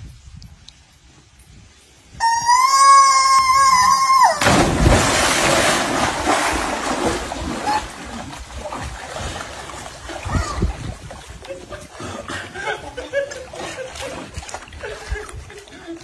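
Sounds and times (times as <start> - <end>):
person screaming: 2.2 - 4.6
water churning: 3.4 - 16.0
splash into swimming pool: 4.0 - 11.0.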